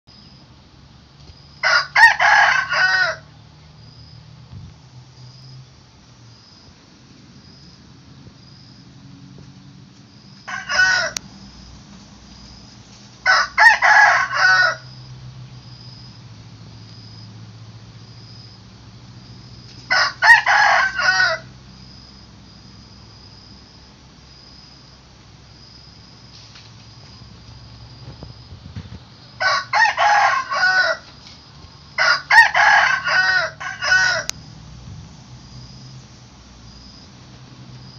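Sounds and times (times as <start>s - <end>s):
rooster crowing: 1.6s - 3.3s, 10.2s - 11.2s, 13.2s - 15.0s, 19.9s - 21.6s, 29.4s - 31.2s, 31.9s - 34.4s.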